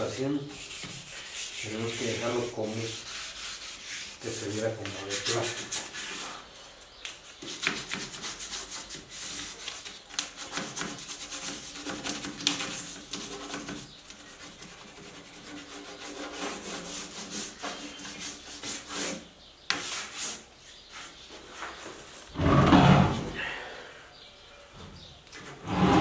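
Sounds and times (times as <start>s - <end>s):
sandpaper rubbing on wood: 0.0s - 6.5s, 7.2s - 21.2s.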